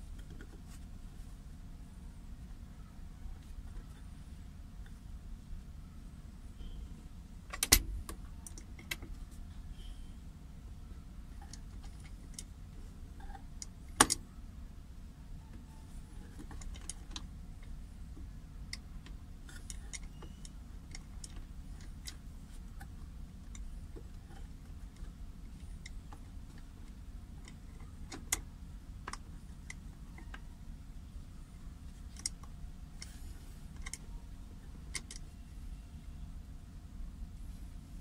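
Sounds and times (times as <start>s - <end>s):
low steady rumble: 0.0s - 38.0s
metallic clicks of handbrake lever: 7.5s - 9.1s.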